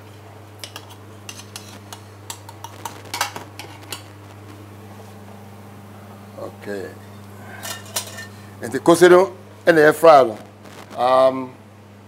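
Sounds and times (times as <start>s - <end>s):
steady low hum: 0.0s - 12.0s
metal pans and utensils clinking: 0.6s - 2.6s, 7.6s - 8.4s.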